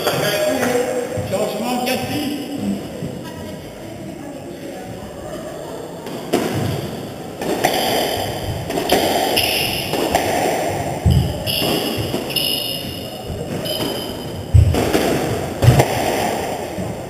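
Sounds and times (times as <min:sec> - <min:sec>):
heavy thuds: 0:06.2 - 0:17.0
squash ball cracking off walls: 0:06.2 - 0:17.0
shoes squeaking on wooden floor: 0:10.7 - 0:15.8.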